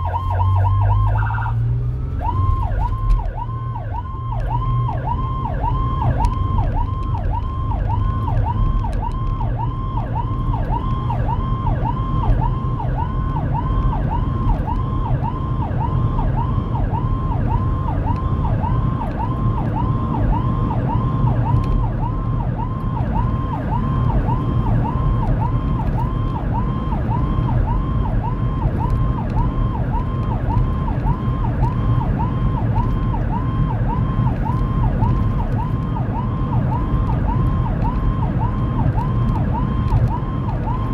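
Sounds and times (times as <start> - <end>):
electronic siren yelp: 0.0 - 40.9
low rumble of engine and tyres: 0.0 - 40.9.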